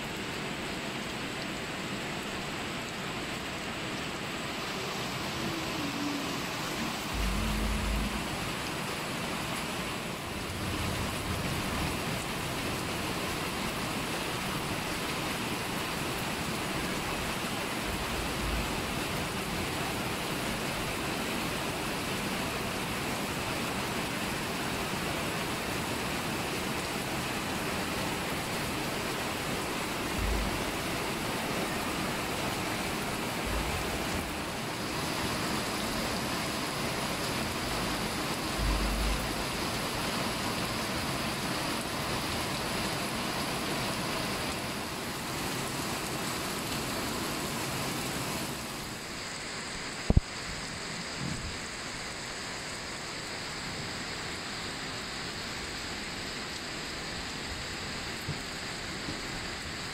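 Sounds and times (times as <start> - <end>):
rain falling on leaves: 0.0 - 59.9
low thumps: 6.8 - 9.0, 30.1 - 30.9, 38.5 - 39.8.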